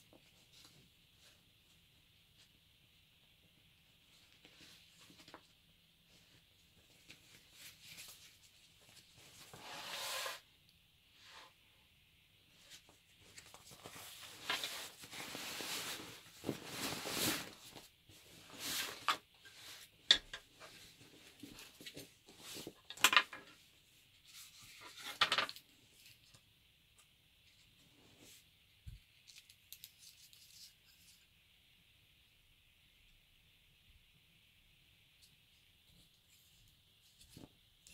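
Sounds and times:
canvas bag fabric rustling: 0:12.6 - 0:19.8.

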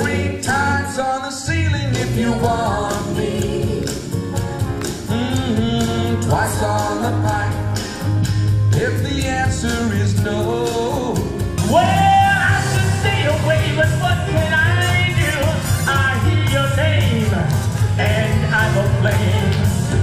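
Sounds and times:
band backing track: 0:00.0 - 0:20.0
man singing into a microphone: 0:05.1 - 0:07.8, 0:08.7 - 0:19.8.

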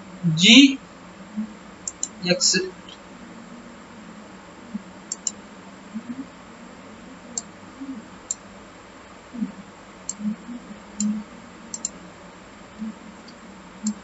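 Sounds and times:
faint hiss: 0:00.0 - 0:14.0
computer mouse clicking: 0:01.8 - 0:02.2, 0:05.1 - 0:05.4, 0:11.7 - 0:12.0.

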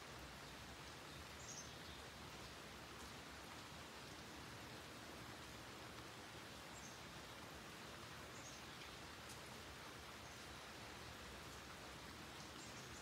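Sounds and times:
light rain on leaves: 0:00.0 - 0:13.0.

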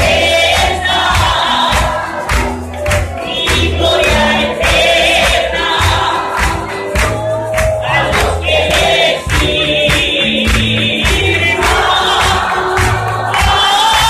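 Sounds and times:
band instruments with bass: 0:00.0 - 0:14.0
congregation singing: 0:00.0 - 0:14.0.

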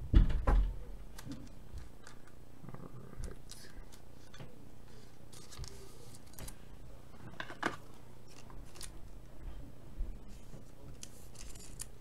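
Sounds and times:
low steady room hum: 0:00.0 - 0:12.0
trading cards rustling and clicking: 0:03.2 - 0:06.6, 0:07.4 - 0:09.0, 0:10.4 - 0:12.0.

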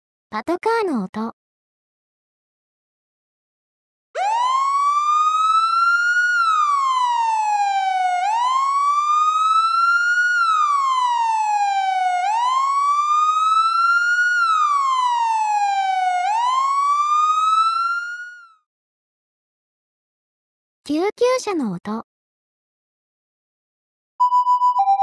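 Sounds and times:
police siren wailing: 0:04.2 - 0:18.6.

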